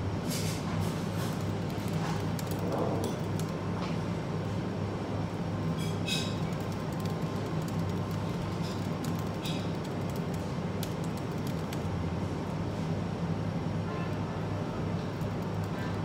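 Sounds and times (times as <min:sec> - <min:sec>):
cafe background hum: 0:00.0 - 0:16.0
laptop keyboard typing: 0:01.3 - 0:03.6, 0:06.4 - 0:12.0, 0:15.0 - 0:16.0.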